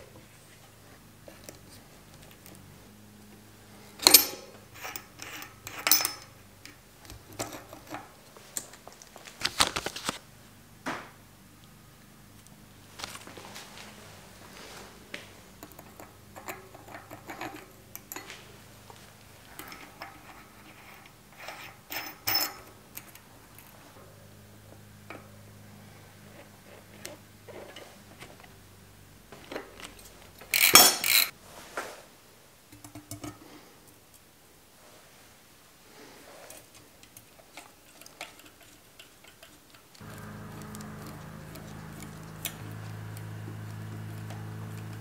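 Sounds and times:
metal tools clinking and clattering: 4.0 - 6.4, 19.5 - 22.7, 29.9 - 31.3.

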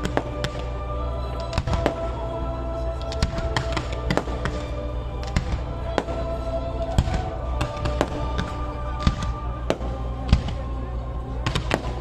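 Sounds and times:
fireworks bursting with bangs: 0.0 - 0.7, 1.5 - 2.2, 3.1 - 10.7, 11.4 - 12.0
steady music: 0.0 - 12.0.

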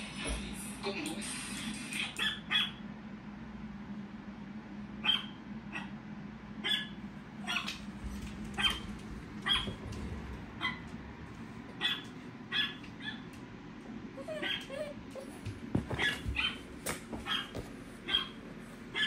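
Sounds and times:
dog barks: 2.2 - 2.8, 5.0 - 6.0, 6.6 - 7.8, 8.5 - 9.8, 10.6 - 10.9, 11.8 - 13.3, 14.3 - 14.9, 15.9 - 19.0.

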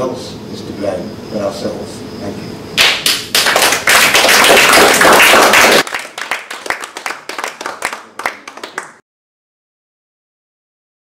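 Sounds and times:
audience applauding: 2.8 - 9.0.

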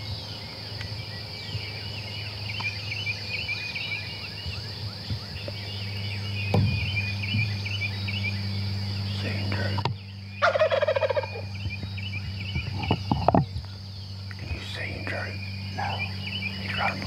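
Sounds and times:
small birds chirping: 0.0 - 17.0
turkey gobbling: 10.4 - 11.5.

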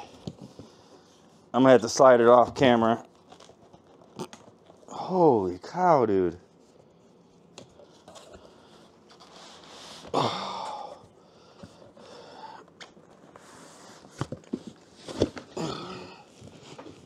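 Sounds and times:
cardboard box scraping across desk: 9.1 - 10.2
person grunting: 10.1 - 11.0, 15.6 - 16.3.

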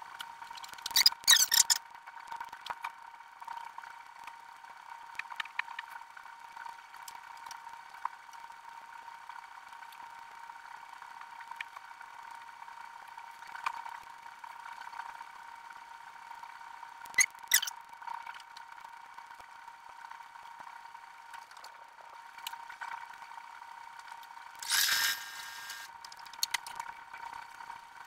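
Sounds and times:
steady hum: 24.6 - 25.9.

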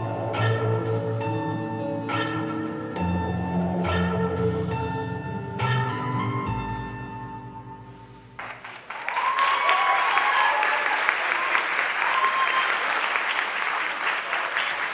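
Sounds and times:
audience applause: 8.4 - 14.9.

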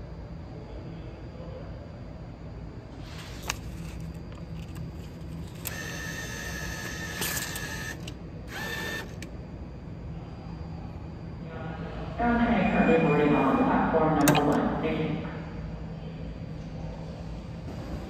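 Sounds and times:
low steady hum: 0.0 - 18.0
bill acceptor motor whirring: 3.4 - 9.3
clicks: 14.2 - 14.6.

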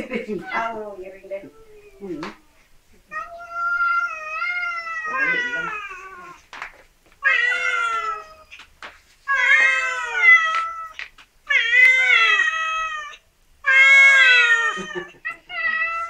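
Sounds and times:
cat meowing loudly: 3.1 - 6.4, 7.2 - 8.5, 9.3 - 16.0.

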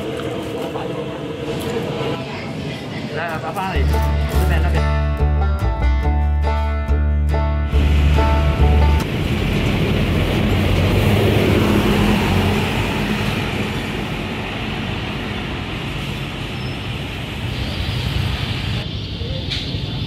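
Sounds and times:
street traffic: 0.0 - 20.0
bus engine passing: 7.7 - 18.8.

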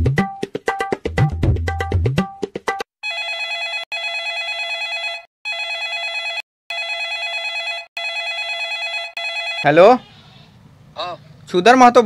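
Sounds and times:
telephone ringing: 3.0 - 10.0.

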